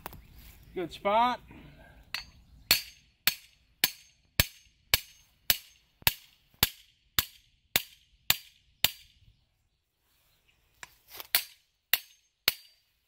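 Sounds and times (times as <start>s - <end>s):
hammer striking metal stake: 2.1s - 9.2s, 11.2s - 12.8s.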